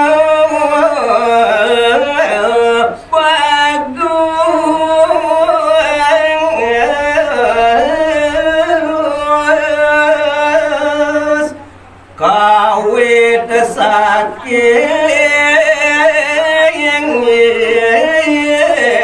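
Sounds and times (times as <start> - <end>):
man singing solo: 0.0 - 19.0.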